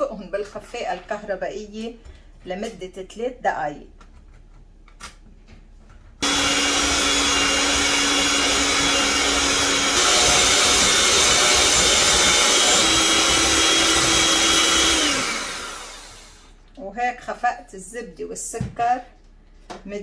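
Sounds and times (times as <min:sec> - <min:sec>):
electric hand mixer running: 0:06.2 - 0:16.6.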